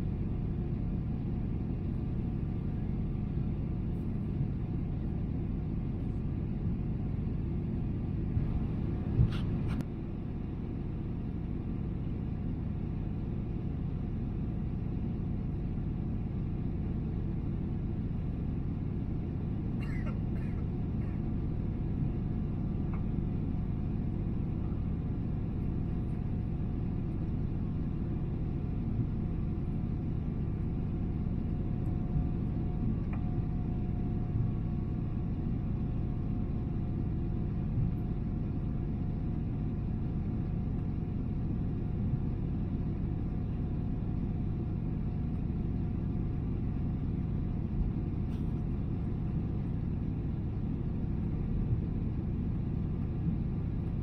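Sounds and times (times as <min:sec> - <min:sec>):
airplane cabin roar: 0:00.0 - 0:54.0
faint steady hum: 0:00.0 - 0:54.0.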